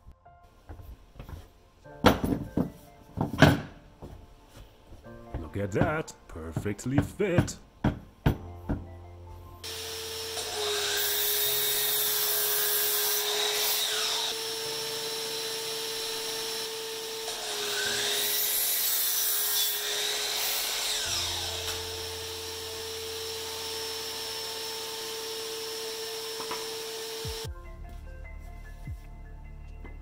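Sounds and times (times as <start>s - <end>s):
miter saw cutting wood: 9.6s - 27.5s.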